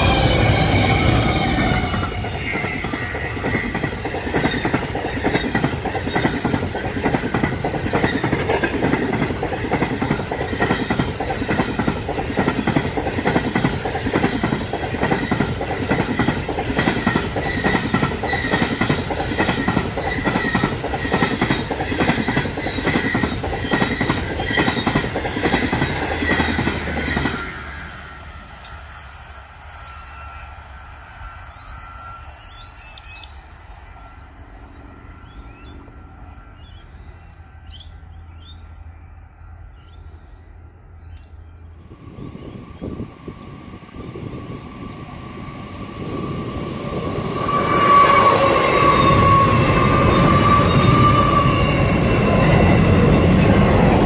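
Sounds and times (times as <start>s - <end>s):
train wheels clicking: 0.0s - 27.9s.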